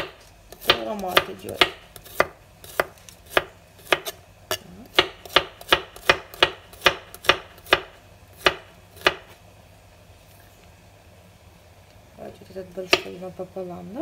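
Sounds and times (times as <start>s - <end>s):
knife chopping on cutting board: 0.0s - 4.2s, 4.9s - 9.3s.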